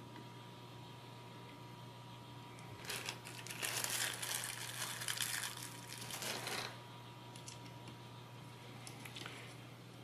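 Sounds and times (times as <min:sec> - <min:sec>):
plastic bag crinkling: 0:02.8 - 0:06.8.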